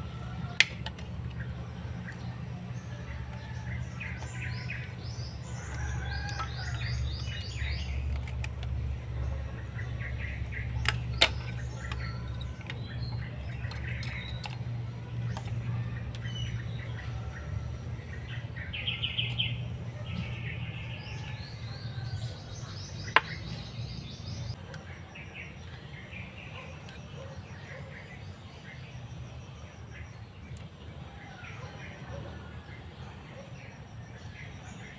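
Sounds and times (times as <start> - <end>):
low steady rumble: 0.0 - 24.6
birds chirping: 0.0 - 34.9.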